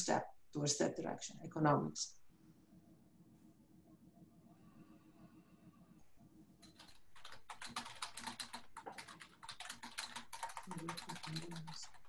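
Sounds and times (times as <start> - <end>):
rapid keyboard typing: 6.6 - 12.0.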